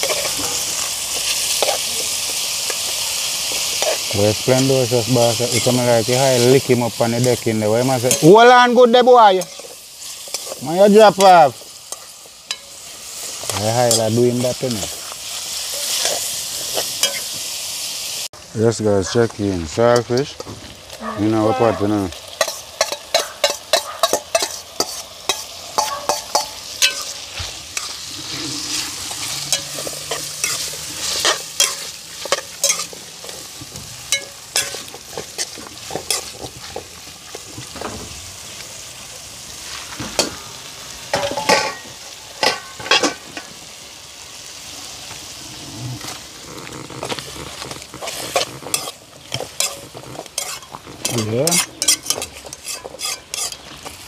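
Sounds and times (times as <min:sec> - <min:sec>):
fish sizzling in a pot: 0:00.0 - 0:54.0
spoon scraping a pot: 0:27.8 - 0:36.8, 0:47.0 - 0:53.7.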